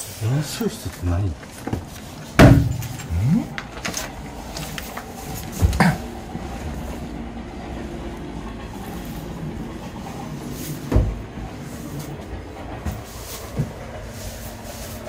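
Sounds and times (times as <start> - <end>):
steady low rumble: 0.2 - 15.0
footsteps on debris: 0.5 - 6.1
sharp thump: 2.4 - 2.9.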